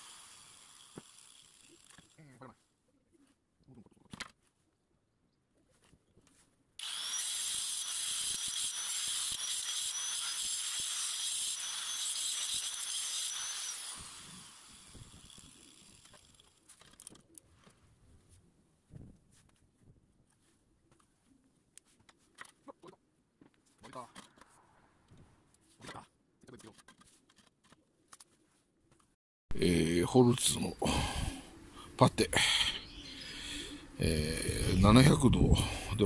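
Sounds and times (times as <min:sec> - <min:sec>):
angle grinder cutting ceramic: 0:00.0 - 0:02.2, 0:06.8 - 0:16.5.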